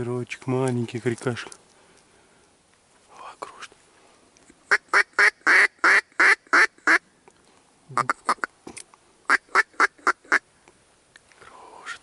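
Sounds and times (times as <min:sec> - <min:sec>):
duck quacking: 0:07.9 - 0:08.5.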